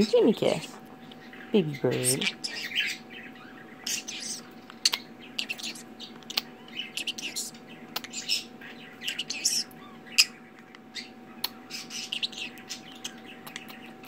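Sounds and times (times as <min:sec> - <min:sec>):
parrot chirping and squawking: 0:01.1 - 0:14.0
sharp kissing smacks: 0:08.0 - 0:08.2.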